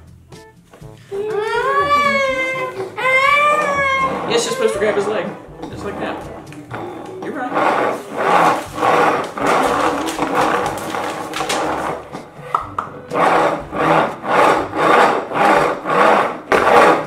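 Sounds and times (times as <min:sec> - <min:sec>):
toy wheels rolling on tabletop: 0:05.9 - 0:12.1, 0:13.1 - 0:17.0.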